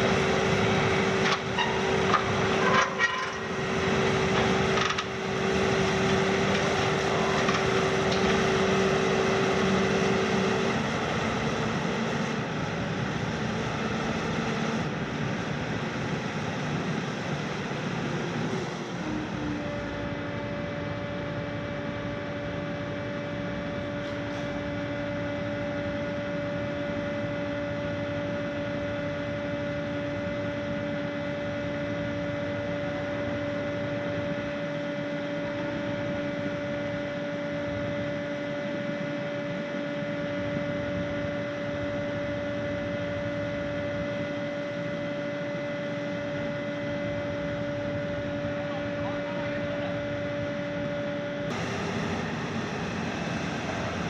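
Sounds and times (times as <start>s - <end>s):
excavator engine droning with whine: 0.0s - 54.0s.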